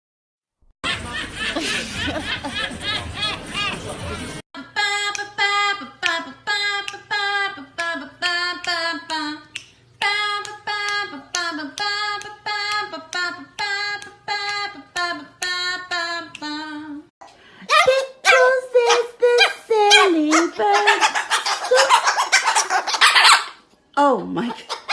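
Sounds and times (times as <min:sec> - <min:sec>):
high voice singing unaccompanied: 0:04.6 - 0:17.1, 0:17.7 - 0:22.1.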